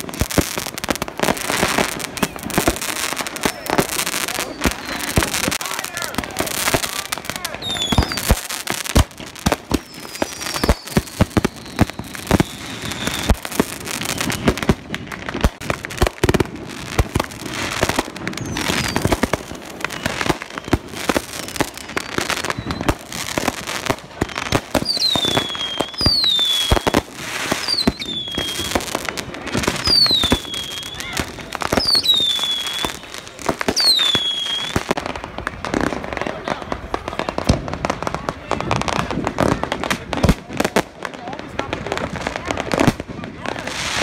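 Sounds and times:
fireworks bangs and crackles: 0.0 - 44.0
firework whistles falling in pitch: 7.6 - 8.4, 9.7 - 13.4, 18.2 - 21.2, 21.8 - 23.1, 24.3 - 28.9, 29.8 - 35.0.

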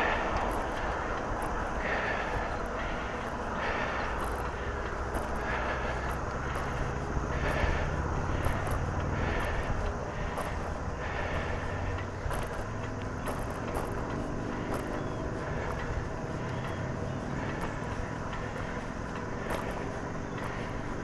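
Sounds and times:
bike tyres rolling on concrete: 0.0 - 21.0
faint ticks of wheels on joints: 0.0 - 21.0
wind buffeting microphone: 0.0 - 21.0.

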